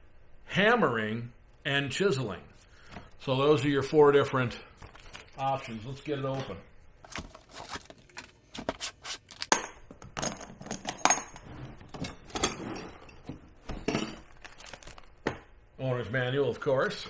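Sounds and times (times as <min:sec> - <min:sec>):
cardboard rustling and scraping: 0:07.0 - 0:09.5.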